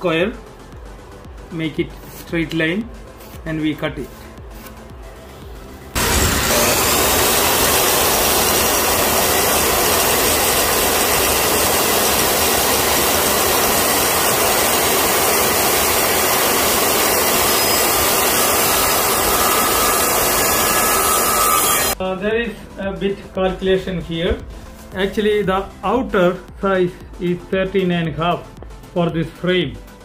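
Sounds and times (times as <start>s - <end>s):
circular saw cutting wood: 6.0s - 22.0s.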